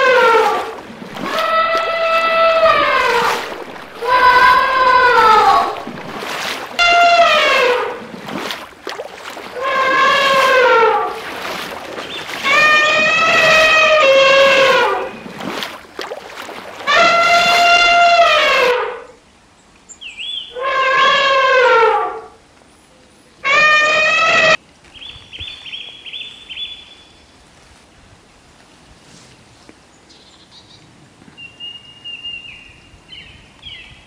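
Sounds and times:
elephant trumpeting: 0.0s - 8.1s, 9.5s - 11.3s, 12.0s - 15.3s, 16.8s - 19.0s, 23.4s - 24.6s.

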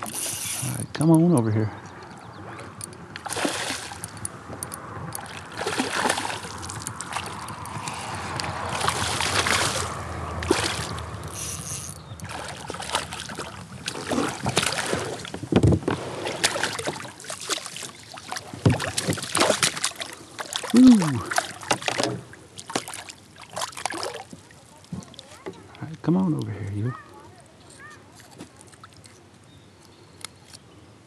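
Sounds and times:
fish splashing at surface: 3.2s - 4.1s, 5.2s - 15.4s, 16.0s - 24.3s.

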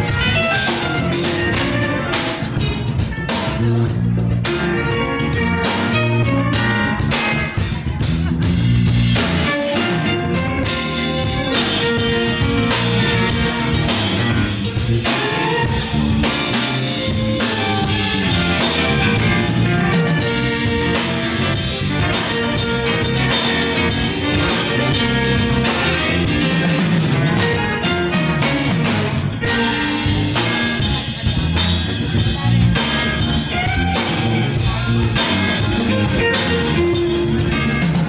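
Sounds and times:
congas: 0.0s - 38.0s
electric guitar: 0.0s - 38.0s
keyboard: 0.0s - 38.0s
percussion strikes: 0.0s - 38.0s
upright bass: 0.0s - 38.0s
violin: 9.0s - 38.0s.

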